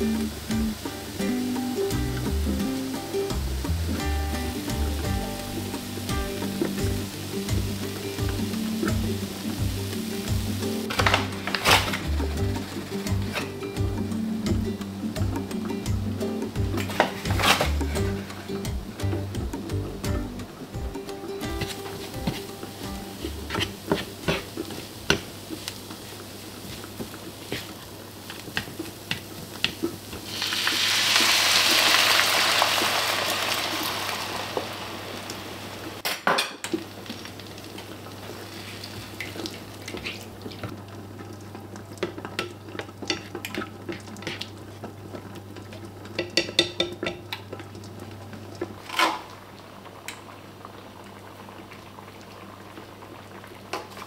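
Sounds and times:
loud sizzle: 0.0s - 54.0s
meat frying: 0.0s - 54.0s
plastic spatula scraping frying pan: 16.8s - 18.4s, 23.1s - 29.9s, 39.9s - 40.3s.

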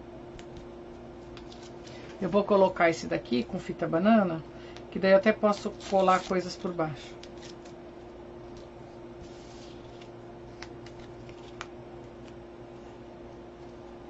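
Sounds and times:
steady low hum: 0.0s - 14.0s
paper rustling: 5.4s - 7.7s, 8.5s - 12.4s.

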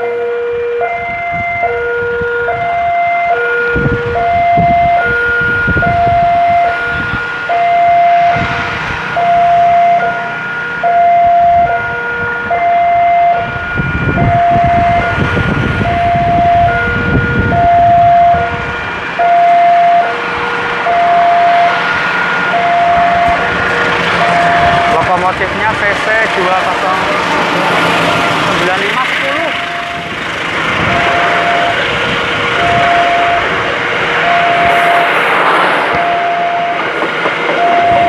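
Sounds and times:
two-tone crossing alarm: 0.0s - 38.0s
low rumble: 12.6s - 38.0s.

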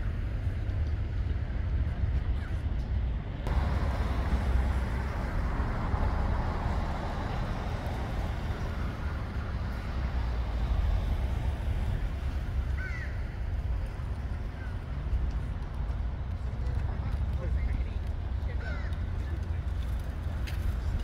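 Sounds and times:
steady low traffic rumble: 0.0s - 21.0s
vehicle passing: 3.5s - 14.5s.

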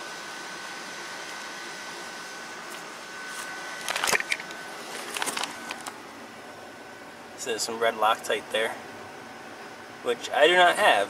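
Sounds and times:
sharp clicks and rustles: 2.7s - 6.0s.

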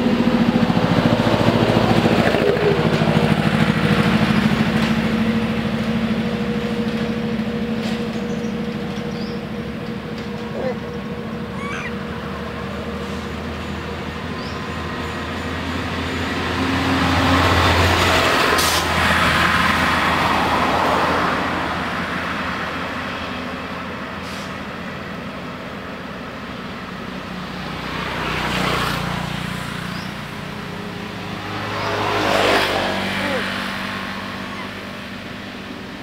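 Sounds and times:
traffic engine hum: 0.0s - 36.0s.

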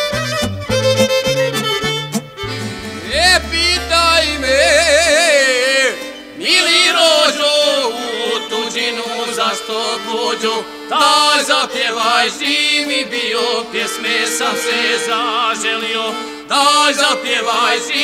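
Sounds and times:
stepping bass line: 0.0s - 6.0s
violin melody with vibrato: 0.0s - 18.0s.

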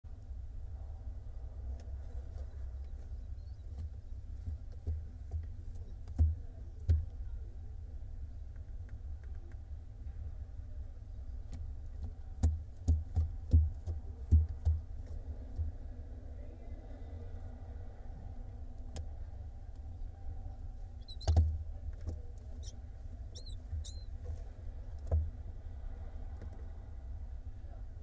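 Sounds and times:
steady low rumble: 0.1s - 28.0s
knocks and thumps against wood: 12.0s - 14.9s, 21.2s - 22.3s.

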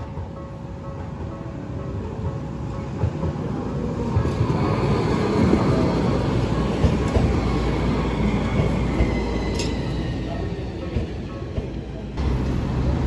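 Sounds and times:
electric train rumbling: 0.0s - 13.0s
train wheels clacking: 5.5s - 12.6s.

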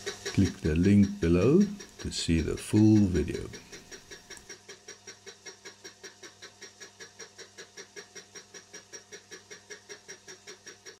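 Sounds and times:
fly cutter ticking on metal: 0.0s - 5.2s.

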